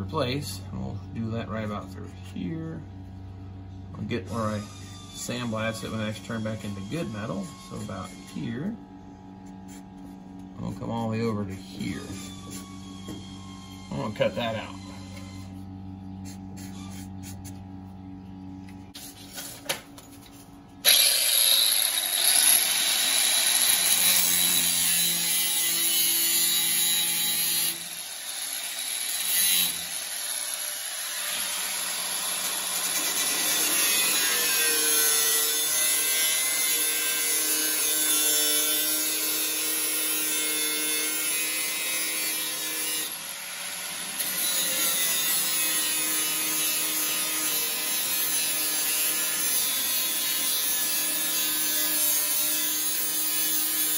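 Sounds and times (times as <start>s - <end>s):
grinder cutting sheet steel: 20.8s - 53.9s.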